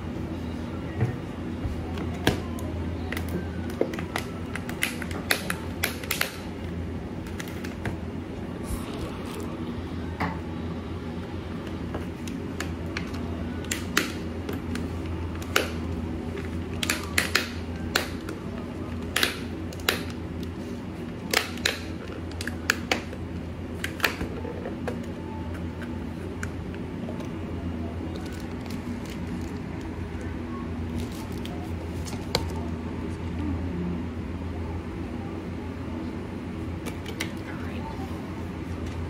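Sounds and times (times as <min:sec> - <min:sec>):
steady low hum: 0:00.0 - 0:39.0
candles clicking and tapping: 0:03.1 - 0:06.4, 0:12.0 - 0:20.6.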